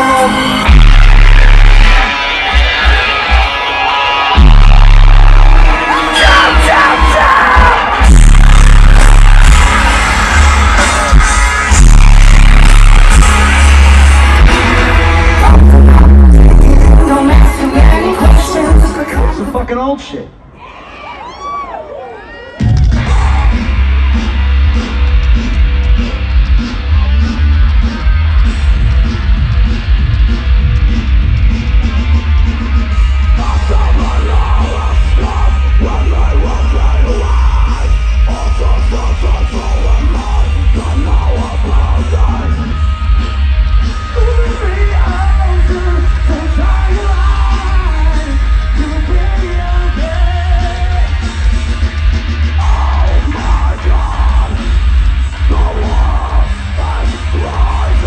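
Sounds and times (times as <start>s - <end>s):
pounding drums with heavy bass: 0.0s - 19.3s, 22.6s - 58.0s
distorted electric guitars: 0.0s - 20.4s, 22.6s - 58.0s
vocalist yelling and singing: 5.6s - 8.1s, 15.3s - 20.3s, 33.3s - 42.8s, 44.1s - 51.2s, 52.6s - 54.7s, 55.4s - 58.0s.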